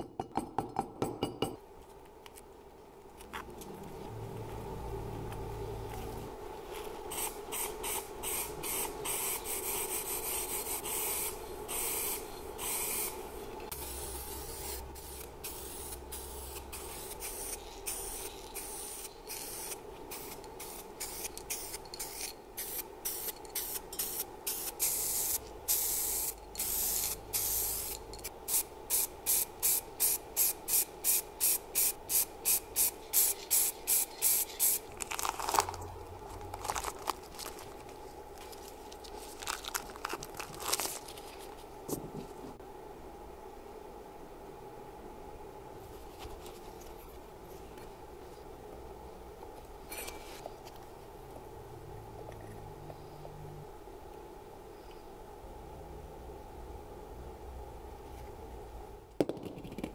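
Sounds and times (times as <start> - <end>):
aerosol spray can spraying: 7.1 - 34.9.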